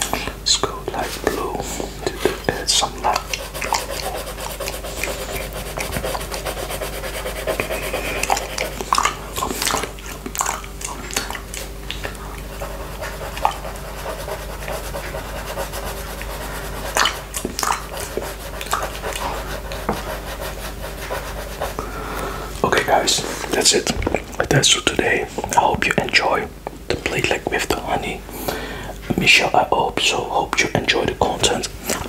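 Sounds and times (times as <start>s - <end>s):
coloured pencil rubbing on paper: 2.1s - 9.7s, 12.4s - 21.8s
mouth licking and sucking: 2.7s - 21.0s
breathing: 21.8s - 22.6s, 28.3s - 29.0s.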